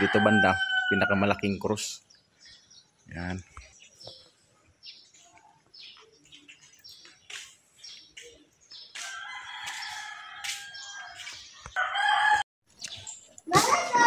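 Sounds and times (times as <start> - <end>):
rooster crowing: 0.0 - 1.2, 9.0 - 12.4
small birds chirping: 0.0 - 14.0.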